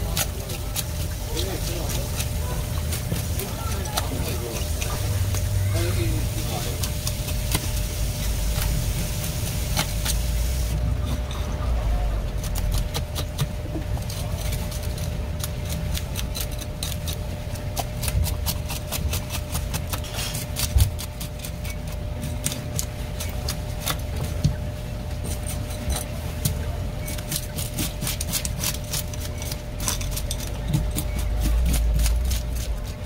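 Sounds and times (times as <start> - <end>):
low hum: 0.0 - 18.2
blade scraping fish scales: 0.0 - 24.2, 27.0 - 33.0.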